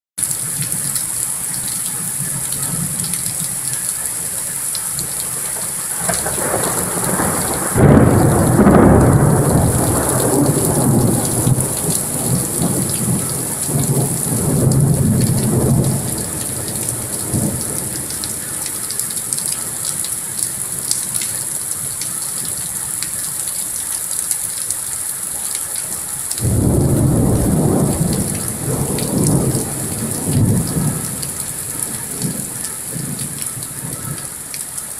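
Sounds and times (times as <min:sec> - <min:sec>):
heavy rain pouring: 0:00.2 - 0:34.9
thunder rumbling and clapping: 0:05.2 - 0:21.3, 0:26.4 - 0:34.3.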